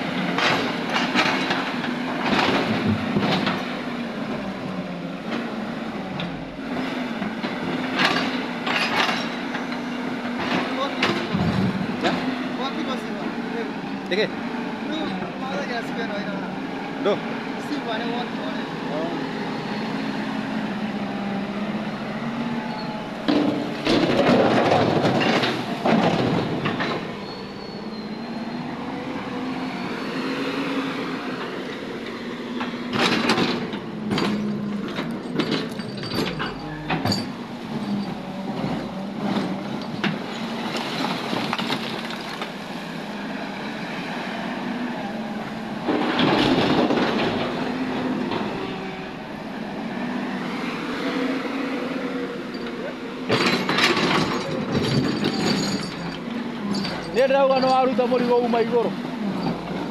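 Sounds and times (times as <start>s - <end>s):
diesel engine running: 0.0s - 59.9s
clanking and scraping of rubble: 0.2s - 13.4s, 22.7s - 29.3s, 32.6s - 43.1s, 45.4s - 49.6s, 52.4s - 59.9s.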